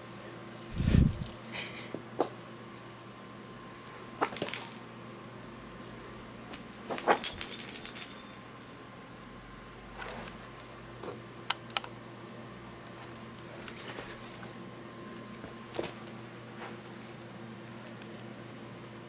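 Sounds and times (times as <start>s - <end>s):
cat toy jingling: 7.2s - 9.3s.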